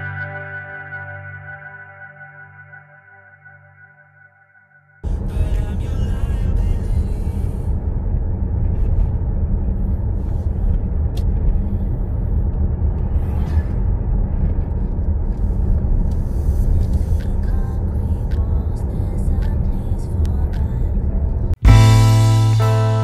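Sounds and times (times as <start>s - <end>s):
car road and engine rumble: 5.0s - 23.0s.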